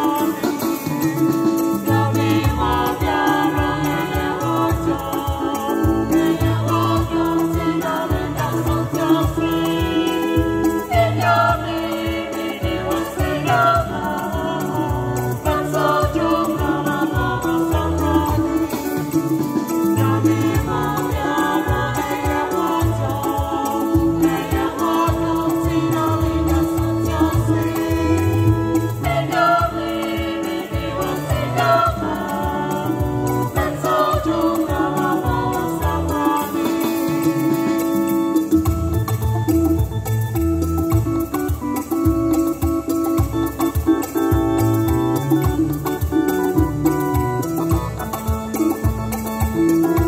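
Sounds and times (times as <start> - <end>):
vocal group singing in harmony: 0.0 - 37.8
keyboard bass and chords: 0.0 - 50.0
steady percussion beat: 0.0 - 50.0.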